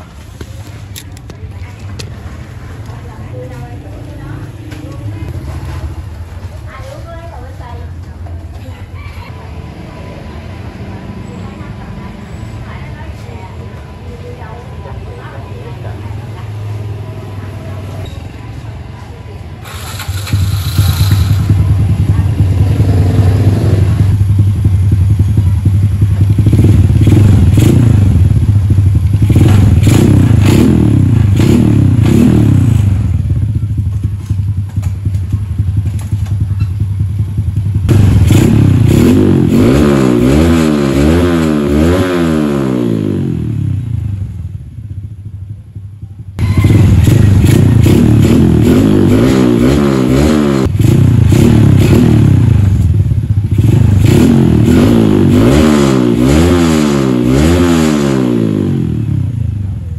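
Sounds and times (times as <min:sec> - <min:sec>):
motorcycle engine revving: 0:19.6 - 0:59.9.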